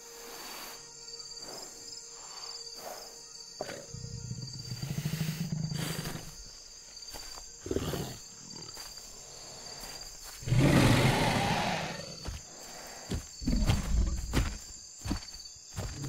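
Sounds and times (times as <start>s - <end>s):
dinosaur growling: 10.4s - 12.2s
dinosaur roaring: 10.4s - 12.2s.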